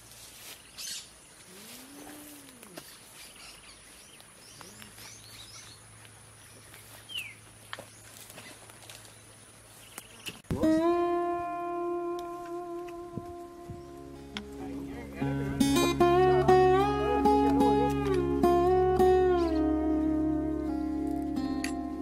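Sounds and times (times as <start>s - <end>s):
bird chirps: 0.6s - 1.2s, 2.8s - 10.4s.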